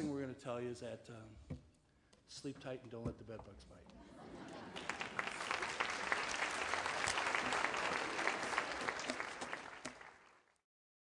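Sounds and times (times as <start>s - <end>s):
audience applauding: 4.5s - 10.6s.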